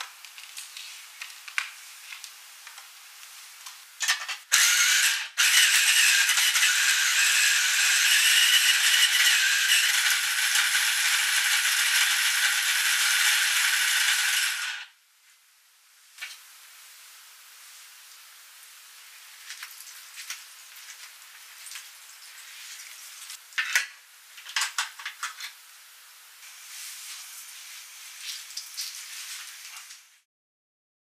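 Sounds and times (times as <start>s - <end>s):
electric food chopper running: 4.5s - 14.9s.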